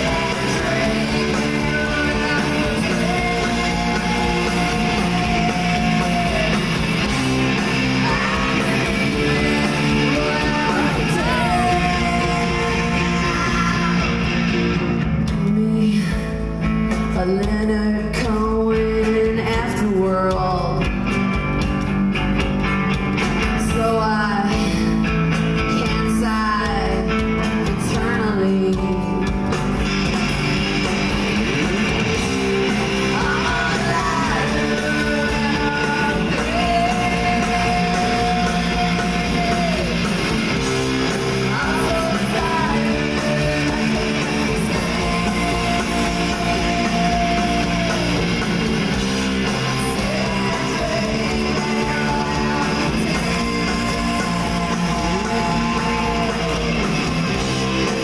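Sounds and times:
woman singing lead: 0.0s - 14.5s, 15.2s - 21.0s, 23.4s - 29.5s, 32.1s - 58.0s
bass guitar: 0.0s - 58.0s
drums: 0.0s - 58.0s
electric guitar: 0.0s - 58.0s.

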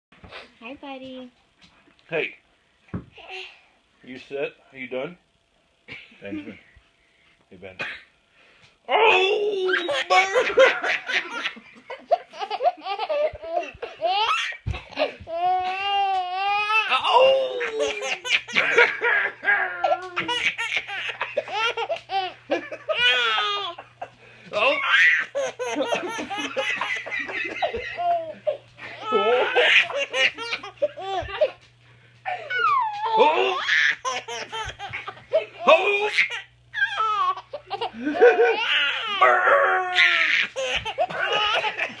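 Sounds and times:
baby laughing: 9.7s - 24.0s, 24.6s - 31.6s, 32.3s - 42.0s.

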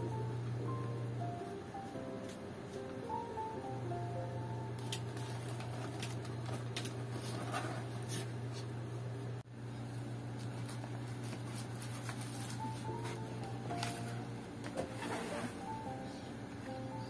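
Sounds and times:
steady low hum: 0.0s - 17.0s
plastic wrap rustling: 4.8s - 8.3s, 10.3s - 12.9s.

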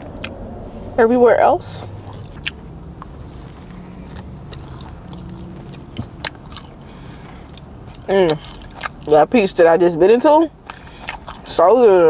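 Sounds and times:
person chewing food: 0.1s - 0.4s, 2.0s - 9.2s, 10.5s - 11.6s.

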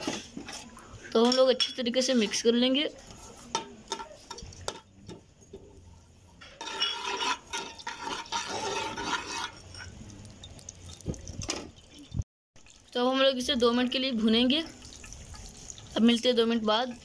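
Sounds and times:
spoon stirring in a metal pan: 0.0s - 12.1s, 14.2s - 17.0s
seeds sizzling in hot oil: 6.6s - 17.0s.

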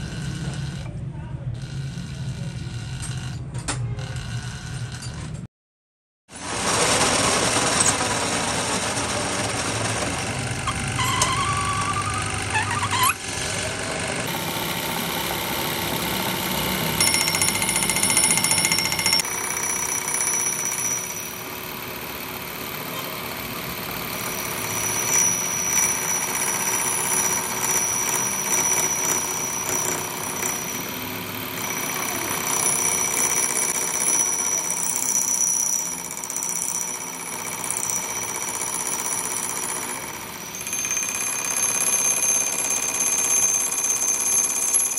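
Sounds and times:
metal lathe humming: 9.4s - 19.6s.

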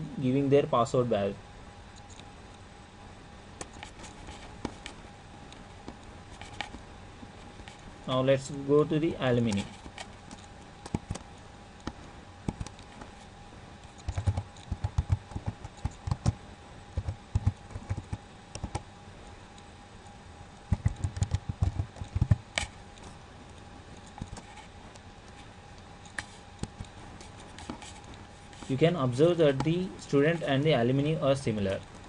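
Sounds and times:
keyboard typing: 10.3s - 13.1s, 13.9s - 16.4s, 17.0s - 18.8s, 20.7s - 22.7s.

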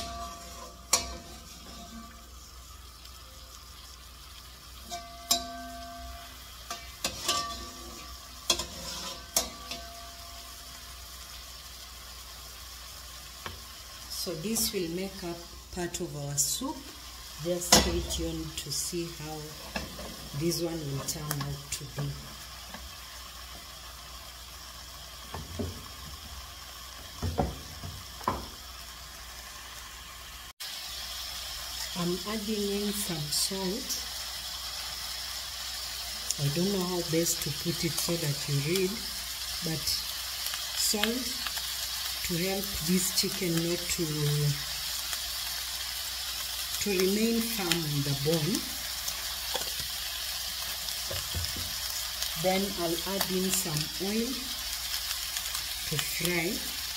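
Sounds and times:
metal spoon knocking frying pan: 0.0s - 2.1s, 4.9s - 8.7s
chicken sizzling in a pan: 0.0s - 56.9s
faint steady hiss: 0.0s - 56.9s.

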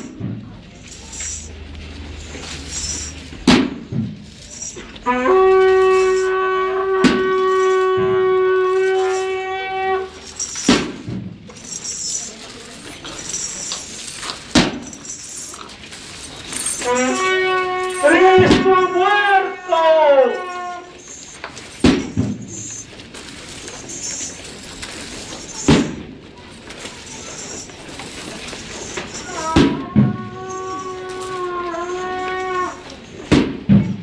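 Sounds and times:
wind instrument playing: 4.6s - 10.5s, 16.2s - 21.4s, 28.8s - 33.2s.

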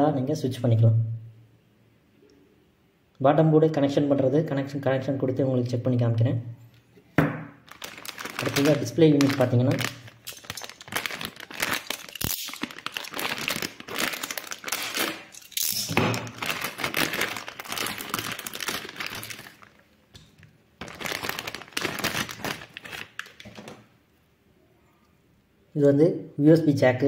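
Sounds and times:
plastic bag crinkling: 7.6s - 23.9s.

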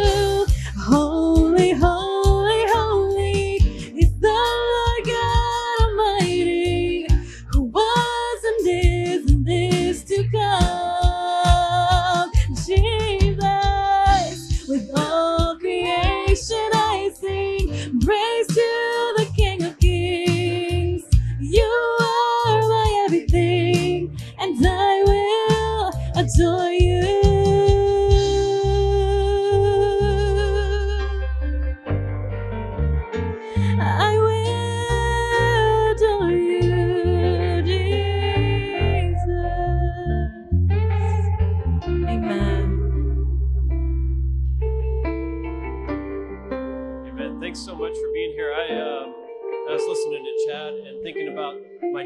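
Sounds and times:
woman singing: 0.0s - 31.1s, 33.6s - 40.4s, 42.1s - 42.9s
instrumental backing music: 0.0s - 52.0s.

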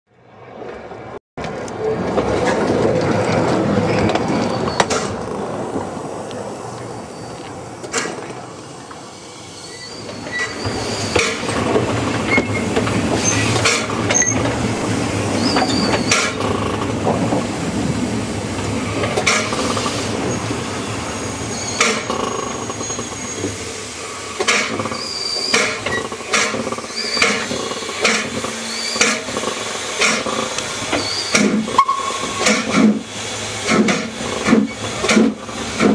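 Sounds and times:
high wheel squeals: 4.3s - 5.0s, 6.8s - 7.5s, 9.1s - 11.5s, 12.3s - 14.5s, 15.3s - 16.7s, 19.5s - 23.7s, 24.6s - 29.3s, 30.3s - 32.7s
steam train running gear rattle: 9.9s - 35.9s
wheel clicks over rail: 24.4s - 31.8s.

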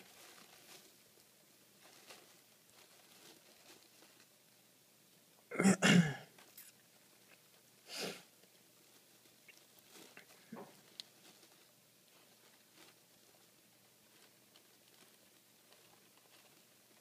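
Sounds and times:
person sneezing: 5.5s - 6.3s, 7.9s - 8.2s.

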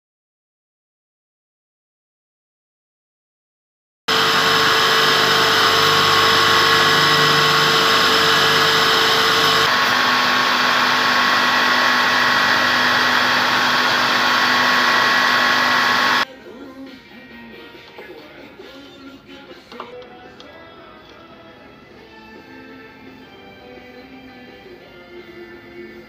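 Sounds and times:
belt grinder grinding steel: 4.1s - 16.2s.

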